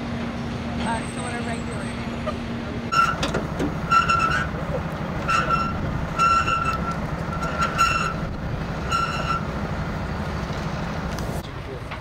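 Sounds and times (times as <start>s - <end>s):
truck engine running: 0.0s - 12.0s
winch cable squealing: 0.8s - 9.6s.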